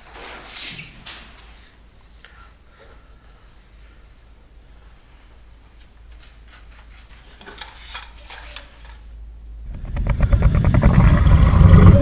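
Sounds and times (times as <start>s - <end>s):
monster growl with pulsing rattle: 9.7s - 12.0s.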